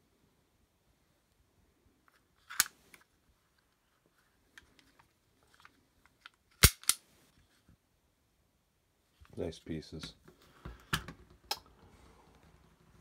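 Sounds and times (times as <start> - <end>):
toy cap gun clicking: 6.6 - 7.0.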